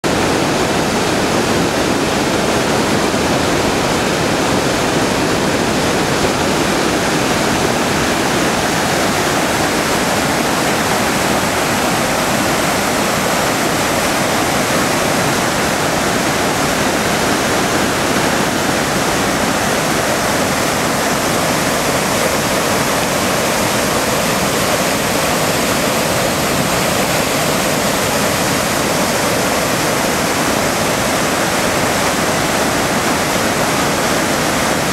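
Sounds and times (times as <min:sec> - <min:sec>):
rushing white water: 0:00.0 - 0:34.9.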